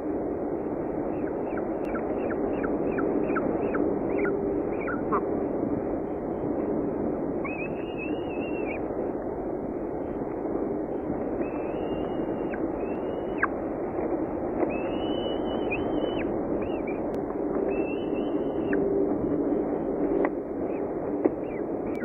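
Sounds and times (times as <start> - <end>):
microphone hiss: 0.0 - 22.0
falcon chick begging calls: 1.2 - 5.3.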